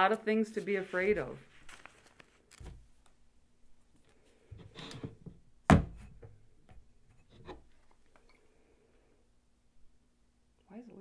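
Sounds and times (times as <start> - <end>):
paper and cardboard handling: 0.4 - 3.0.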